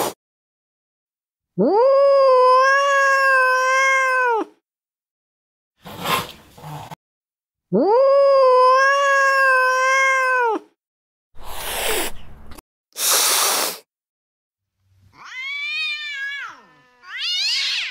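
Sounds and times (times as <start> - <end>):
angry cat yowling: 1.6 - 4.6, 7.8 - 10.8, 15.2 - 17.9
cat hissing: 11.4 - 13.9.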